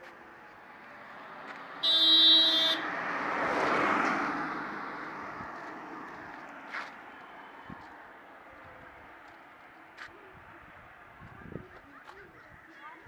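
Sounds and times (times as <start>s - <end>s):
car driving past: 0.3s - 10.0s
car horn blast: 1.8s - 2.9s.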